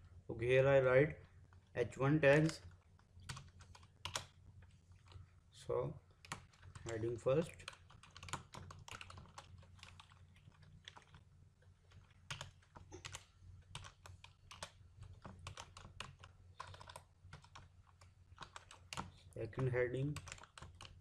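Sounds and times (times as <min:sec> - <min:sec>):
typing on computer keyboard: 0:02.3 - 0:04.4, 0:06.2 - 0:11.3, 0:11.9 - 0:21.0.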